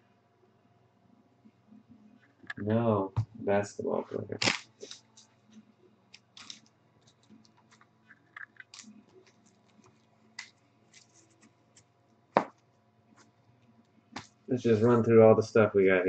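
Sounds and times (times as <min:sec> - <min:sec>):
trading cards handled on table: 0:06.2 - 0:12.6.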